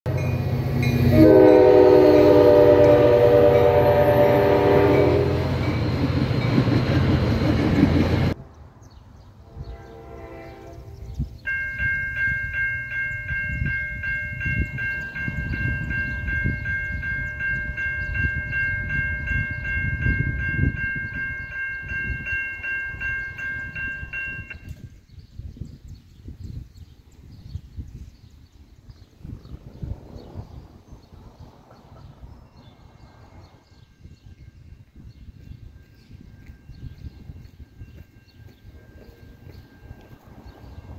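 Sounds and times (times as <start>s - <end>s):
level-crossing warning bell: 0.1s - 7.4s, 11.4s - 25.0s, 32.6s - 40.9s
passing train rumble: 0.1s - 25.7s, 27.1s - 40.9s
train horn: 0.9s - 5.8s, 9.4s - 11.3s.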